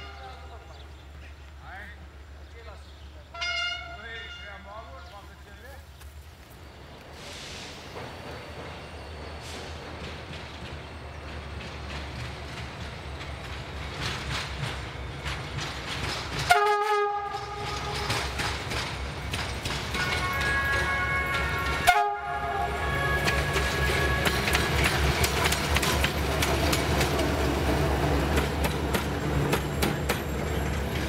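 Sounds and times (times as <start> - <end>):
locomotive horn blast: 3.3 - 4.9, 16.5 - 18.2, 20.0 - 24.6
diesel locomotive rumble: 5.1 - 31.0.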